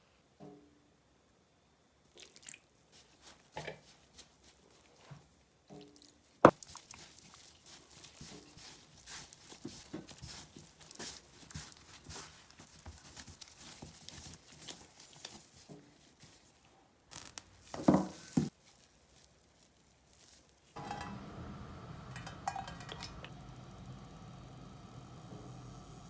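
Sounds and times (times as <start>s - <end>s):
hands kneading dough: 2.3s - 20.8s
cling film crinkling and tearing: 17.1s - 20.8s.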